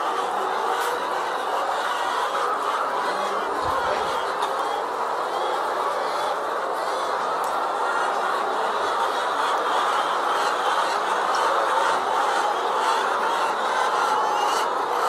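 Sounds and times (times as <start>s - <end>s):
hens clucking: 0.0s - 15.0s.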